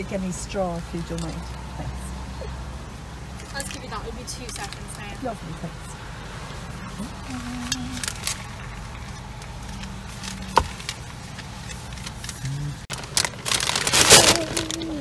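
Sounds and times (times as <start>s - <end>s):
car engine humming: 0.0s - 15.0s
rustling and handling noise: 6.4s - 15.0s.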